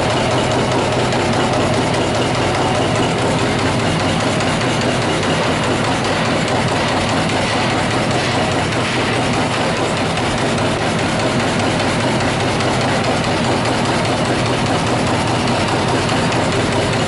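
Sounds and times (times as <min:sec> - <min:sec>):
punch press striking sheet steel: 0:00.0 - 0:17.0.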